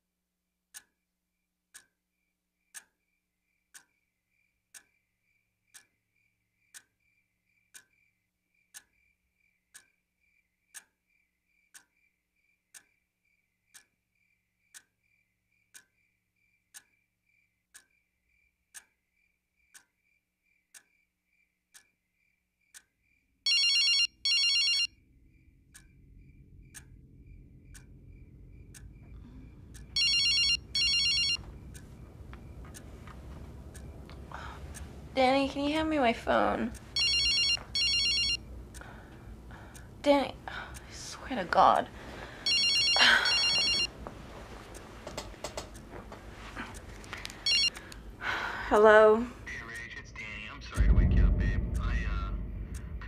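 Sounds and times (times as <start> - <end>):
clock ticking: 0.7 - 1.0, 1.7 - 2.0, 2.7 - 3.0, 3.7 - 4.0, 4.7 - 5.0, 5.7 - 6.0, 6.7 - 7.0, 7.7 - 8.1, 8.7 - 9.1, 9.7 - 10.0, 10.7 - 11.0, 11.7 - 12.0, 12.7 - 13.0, 13.7 - 14.0, 14.7 - 15.0, 15.7 - 16.1, 16.7 - 17.0, 17.7 - 18.0, 18.7 - 19.0, 19.7 - 20.0, 20.7 - 21.0, 21.7 - 22.0, 22.7 - 22.9, 25.7 - 52.9
telephone ringing: 23.5 - 24.9, 29.9 - 31.5, 36.9 - 38.5, 42.4 - 43.9, 47.4 - 47.8
low rumbling drone: 25.1 - 30.0, 50.6 - 53.0.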